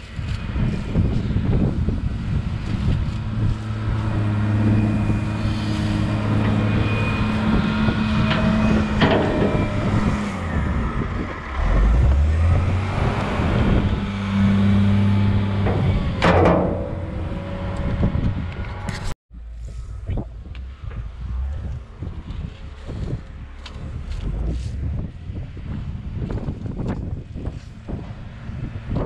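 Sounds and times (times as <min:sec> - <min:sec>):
heavy vehicle engine running: 0:00.0 - 0:29.0
sharp knocks: 0:15.6 - 0:17.8.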